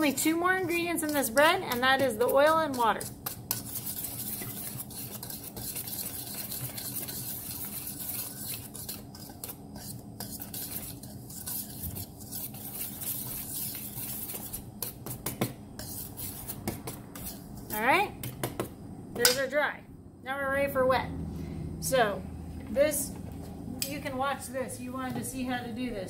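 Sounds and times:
wire whisk in metal bowl: 0.0 - 18.1.

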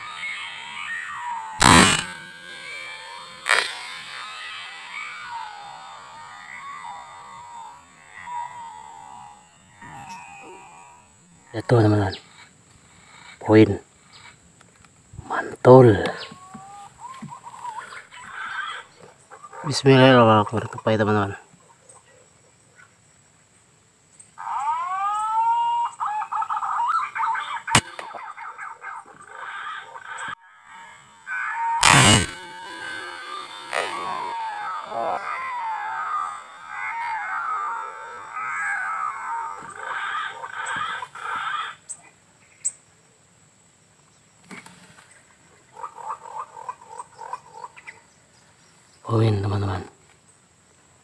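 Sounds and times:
short choppy animal calls: 0.0 - 10.8, 25.7 - 41.8
animal call: 0.0 - 14.4, 15.3 - 22.9, 24.4 - 42.2, 45.6 - 48.1
air rifle shot: 1.6 - 2.8, 27.8 - 28.1.

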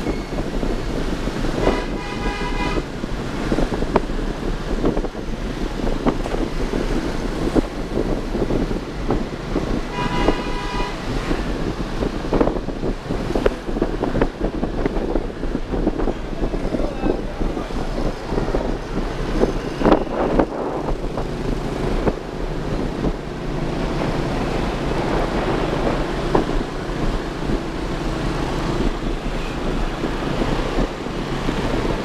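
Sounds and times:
wind buffeting microphone: 0.0 - 32.0
vehicle horn honking: 1.6 - 2.9, 9.9 - 11.1.

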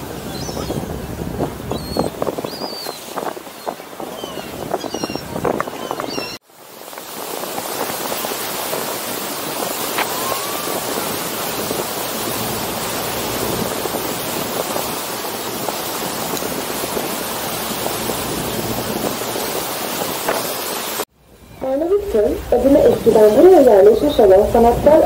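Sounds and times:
wake water rushing: 0.0 - 25.0
wind on microphone: 0.0 - 25.0.

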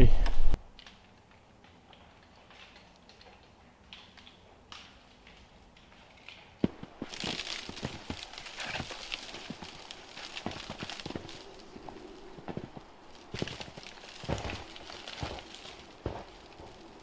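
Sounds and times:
boots crunching through snow: 6.7 - 17.0.

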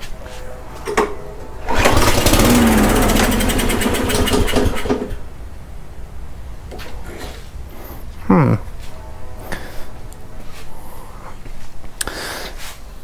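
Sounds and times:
lawn mower engine starting and running: 0.2 - 7.3.

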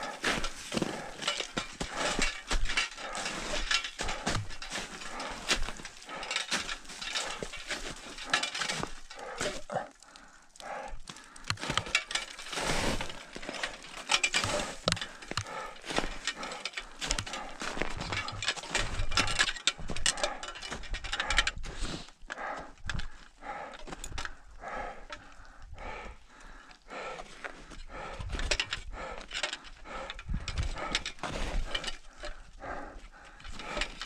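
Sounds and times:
crampons crunching on ice: 0.0 - 9.7.

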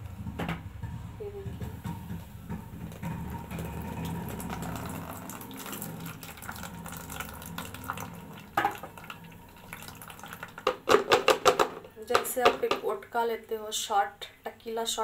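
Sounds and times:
juice pouring through strainer: 2.8 - 10.9.

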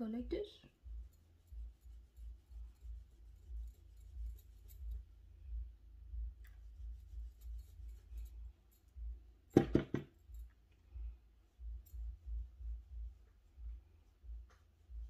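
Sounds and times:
makeup brush strokes on skin: 0.0 - 9.2
soft low thump: 9.6 - 10.2.

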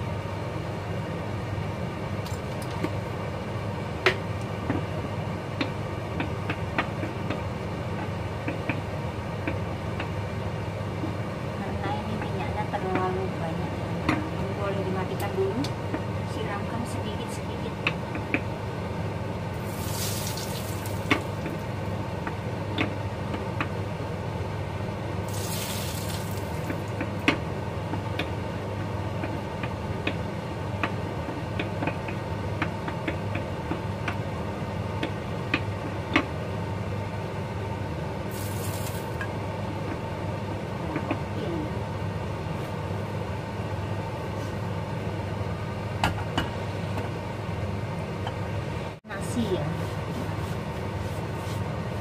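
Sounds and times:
hot oil sizzling: 19.5 - 21.7, 25.2 - 26.9, 38.3 - 39.2.

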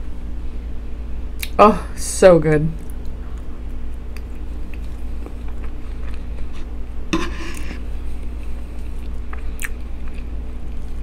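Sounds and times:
steady low hum: 0.0 - 11.0
fork scraping on wooden board: 6.5 - 7.9.

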